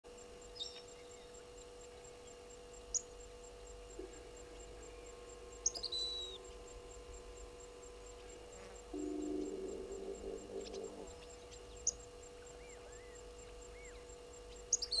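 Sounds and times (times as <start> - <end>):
faint electrical hum: 0.0 - 15.0
wild birds calling: 3.8 - 15.0.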